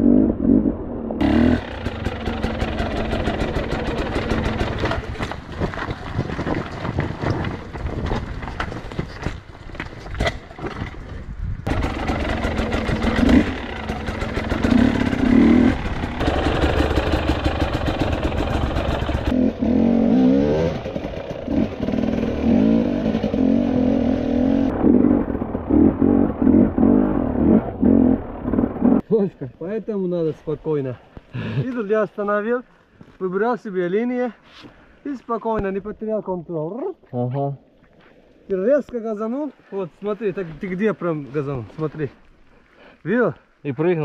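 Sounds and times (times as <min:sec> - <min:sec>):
dirt bike engine revving: 0:00.0 - 0:05.2, 0:11.7 - 0:29.0
clatter and knocks: 0:02.8 - 0:11.2.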